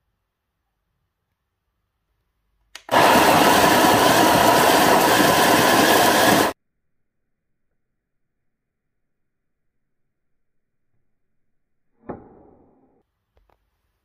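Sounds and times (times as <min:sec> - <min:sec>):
coffee grinder grinding beans: 0:02.9 - 0:06.6.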